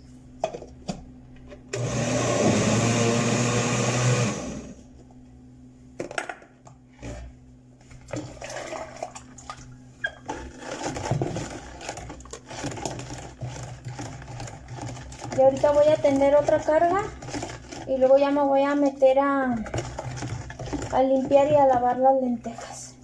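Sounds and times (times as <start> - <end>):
blender running: 1.7 - 4.8, 10.6 - 17.9
jar and utensil knocking bucket: 10.0 - 22.8.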